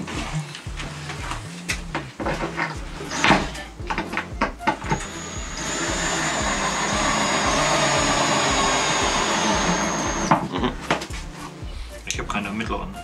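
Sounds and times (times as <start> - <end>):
power drill whining: 2.6 - 10.5.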